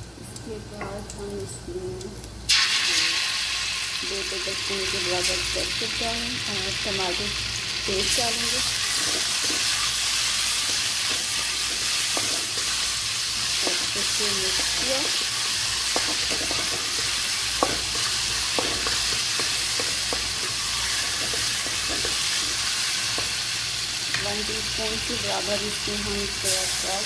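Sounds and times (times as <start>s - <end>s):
paste sizzling in hot oil: 2.5s - 27.0s
spatula scraping metal pan: 8.7s - 9.9s.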